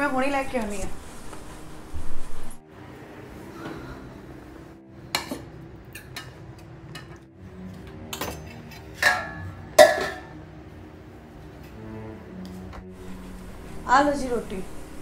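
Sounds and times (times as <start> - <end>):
soft background music: 0.0 - 15.0
steel dishes clinking: 8.1 - 10.3.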